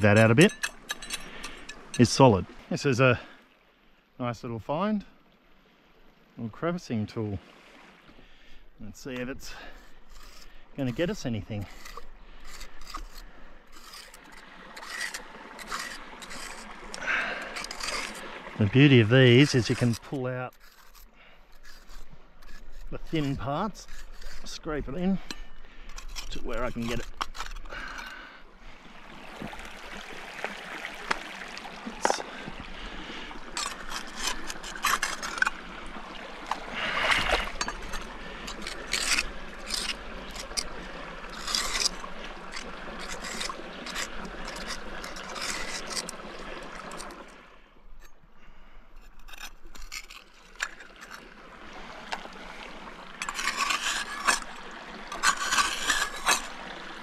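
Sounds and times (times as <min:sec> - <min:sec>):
metal tools scraping on rock: 0:00.0 - 0:02.3, 0:08.9 - 0:28.2, 0:33.5 - 0:35.6, 0:36.5 - 0:47.2, 0:49.0 - 0:51.3, 0:53.2 - 0:56.6.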